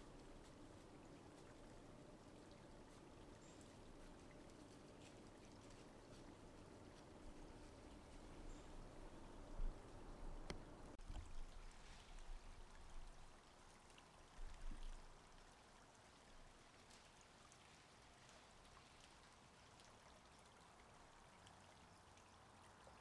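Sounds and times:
faint steady hiss: 0:00.0 - 0:23.0.

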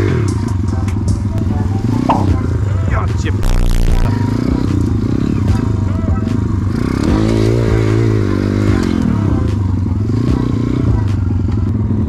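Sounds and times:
pit bike engine revving: 0:01.4 - 0:12.0
knocks on the ground: 0:02.1 - 0:02.4.

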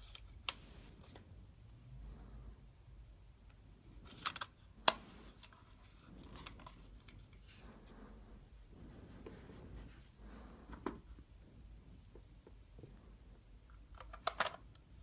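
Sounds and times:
plastic clicks: 0:13.8 - 0:14.9.

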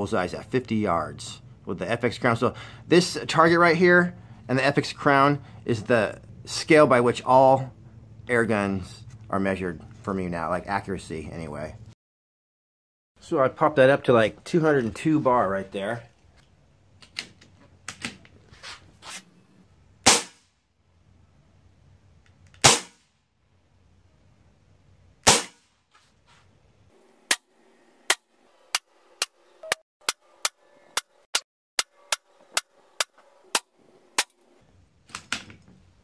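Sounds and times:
air rifle shots: 0:20.0 - 0:20.5, 0:22.6 - 0:23.1, 0:25.2 - 0:25.7.

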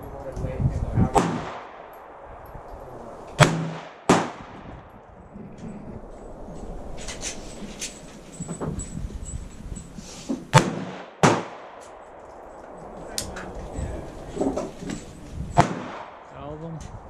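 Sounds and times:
rifle shots: 0:01.1 - 0:02.3, 0:03.4 - 0:04.8, 0:10.5 - 0:12.5, 0:15.6 - 0:16.3
faint sharp cracks and clicks: 0:11.8 - 0:13.5.

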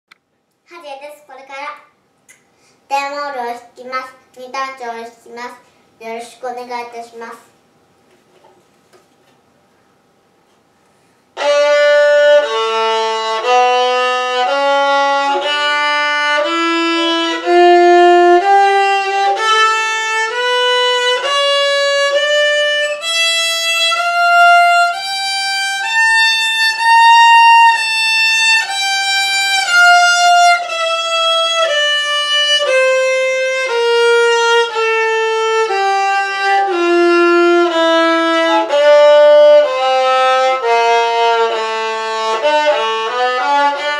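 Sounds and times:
violin playing a scale: 0:11.4 - 0:43.9.

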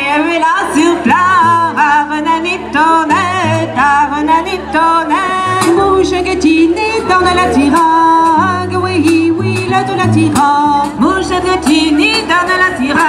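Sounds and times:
women singing: 0:00.0 - 0:13.0
double bass: 0:00.6 - 0:13.0
drums: 0:05.2 - 0:13.0.

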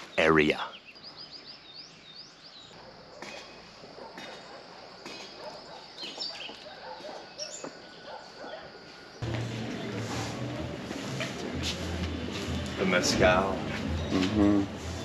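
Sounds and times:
birds chirping: 0:00.0 - 0:10.2
dogs barking: 0:02.7 - 0:08.9
music with deep bass: 0:09.2 - 0:15.0.

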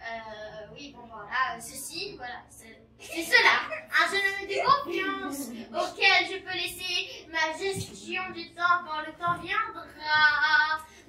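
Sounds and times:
child's sing-song voice: 0:07.4 - 0:11.0.

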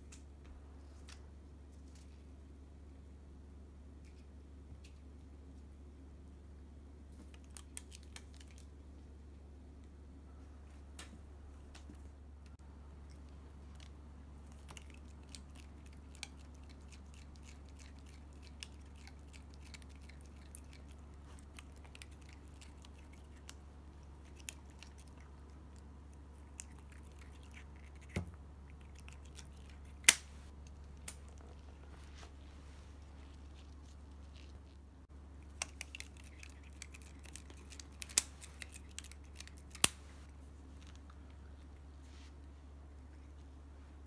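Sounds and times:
cat chewing cloth toy: 0:13.0 - 0:34.8, 0:35.4 - 0:41.6.

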